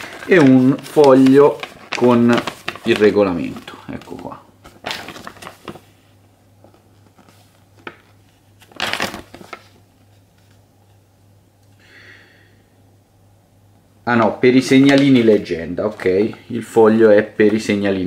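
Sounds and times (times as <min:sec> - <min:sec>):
paper crinkle: 0:00.0 - 0:10.7
paper sheet rustling: 0:00.0 - 0:11.0, 0:14.6 - 0:18.0.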